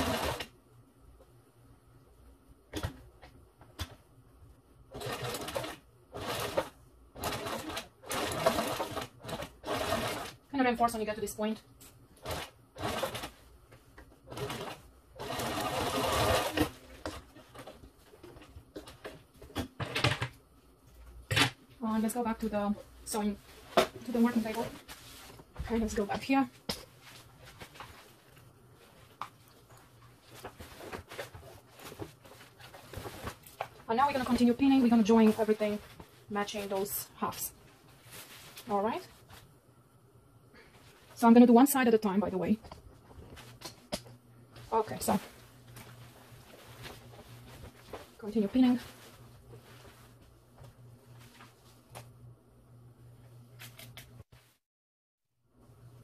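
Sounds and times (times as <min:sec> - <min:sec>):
sewing machine stitching: 0:00.0 - 0:00.5, 0:04.9 - 0:10.4, 0:12.2 - 0:13.4, 0:14.3 - 0:17.8.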